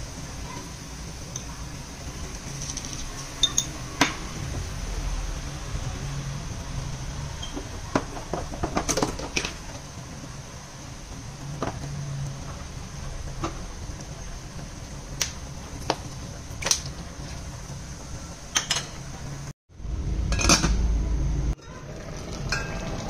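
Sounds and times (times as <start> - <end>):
kitchen utensils clinking: 2.2 - 4.3, 18.5 - 19.1, 22.4 - 23.0.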